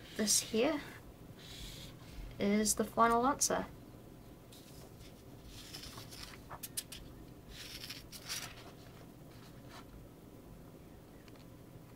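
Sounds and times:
paper sheets rustling: 4.6 - 9.9.

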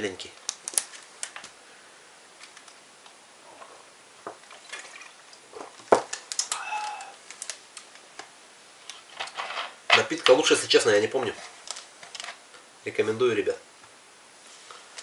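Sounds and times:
plastic bottle crackling: 3.5 - 8.0
man swallowing: 6.4 - 7.2.

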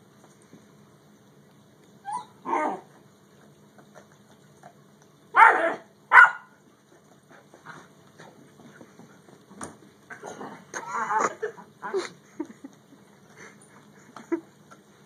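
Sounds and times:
dog barking: 5.4 - 6.5.

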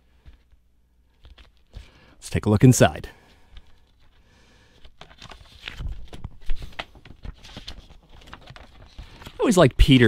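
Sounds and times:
paper and cardboard rustling: 3.5 - 10.0.

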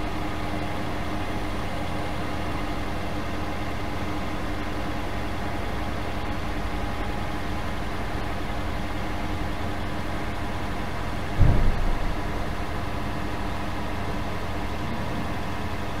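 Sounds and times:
car engine idling: 5.0 - 16.0.

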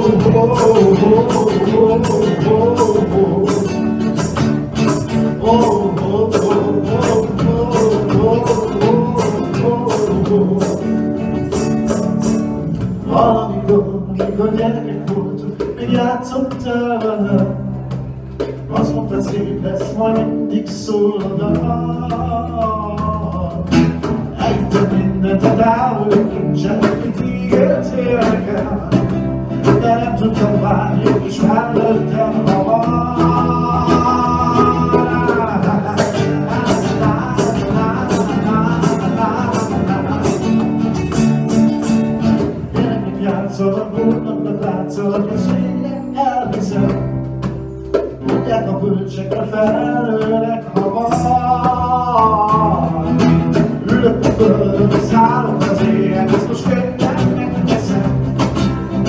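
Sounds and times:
person singing: 0.0 - 41.4, 42.4 - 47.2, 47.9 - 59.0
frame drum beating: 0.0 - 45.8
acoustic guitars playing: 0.0 - 59.0.

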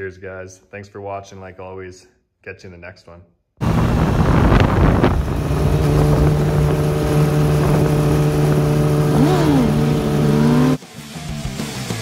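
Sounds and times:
motorcycle engine running: 3.6 - 10.8.

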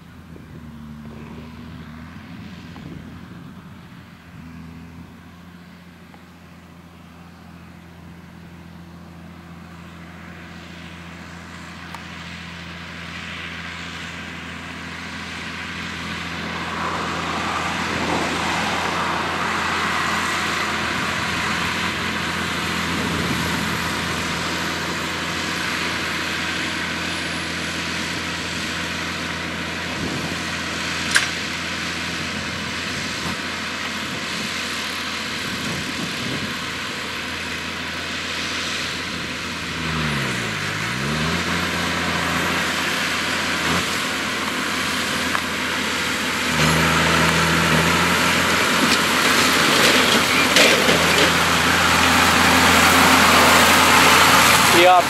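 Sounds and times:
tractor engine under load: 0.0 - 55.0
sharp click: 31.1 - 31.4.

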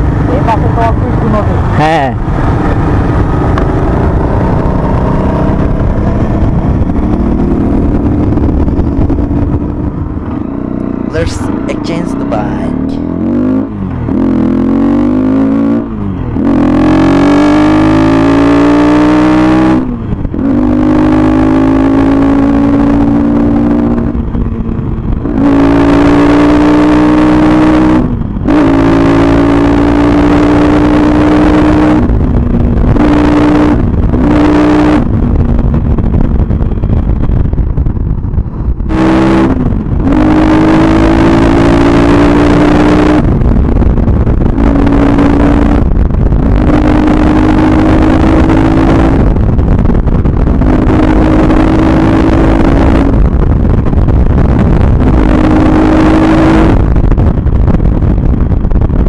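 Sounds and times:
motorcycle engine revving: 0.0 - 59.0
wind rushing over microphone: 0.0 - 59.0.

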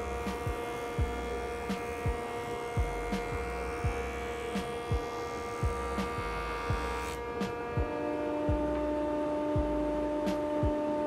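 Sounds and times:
jointer motor hum and whine: 0.0 - 11.0
soft low thumps: 0.4 - 1.4, 2.8 - 4.2, 4.9 - 6.9, 7.8 - 11.0.

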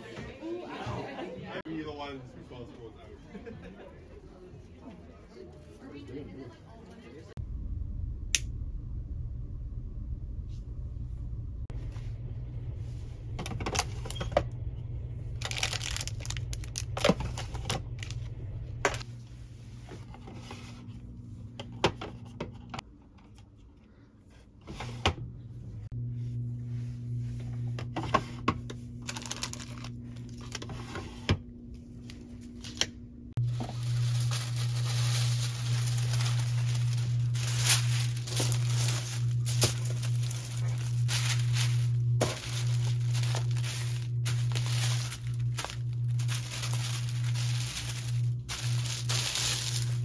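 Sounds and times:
steady low hum: 7.3 - 50.0
paper and plastic rustling: 15.4 - 18.3, 29.0 - 31.2, 32.0 - 50.0.

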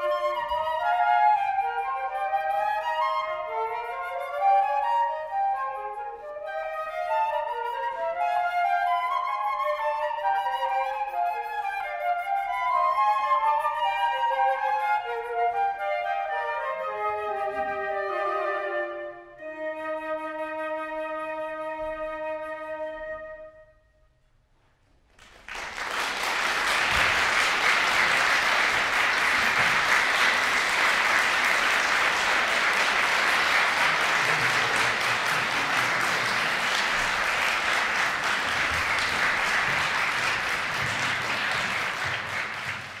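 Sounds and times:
flute note: 0.0 - 24.1
audience applause: 25.2 - 43.0.

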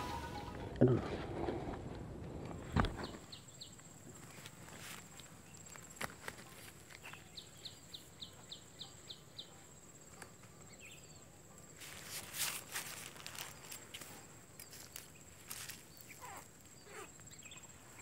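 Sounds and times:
footsteps rustling in tall grass: 4.2 - 7.2, 11.8 - 16.4
high insect whine: 11.7 - 18.0
bird chirping: 14.6 - 18.0.

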